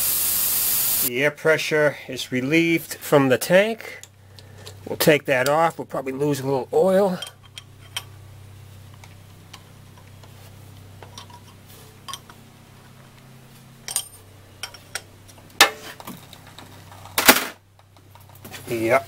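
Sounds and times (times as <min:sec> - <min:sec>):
wrench clinking on brass fitting: 0:07.1 - 0:08.1, 0:11.1 - 0:12.4, 0:13.9 - 0:15.0.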